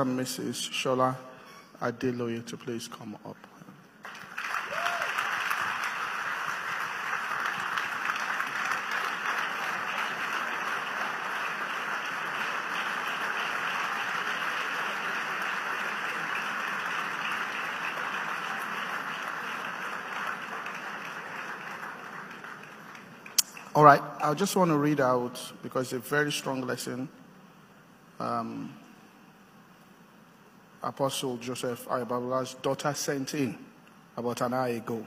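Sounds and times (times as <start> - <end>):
large audience applauding: 4.0 - 23.8.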